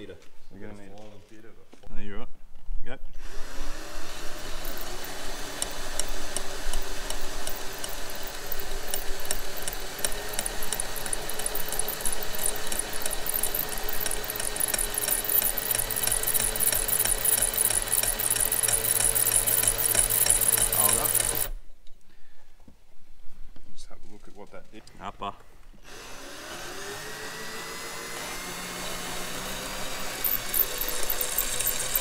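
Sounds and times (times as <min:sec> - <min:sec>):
cordless drill motor whine: 0:03.2 - 0:21.6, 0:25.9 - 0:32.0
metal grinding scraping chatter: 0:07.4 - 0:21.5, 0:30.0 - 0:32.0.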